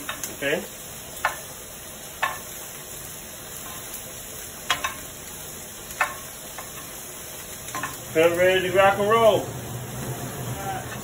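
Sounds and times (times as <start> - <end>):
food sizzling in a pan: 0.0 - 11.0
utensil clinking on cookware: 4.7 - 5.1, 7.7 - 8.1.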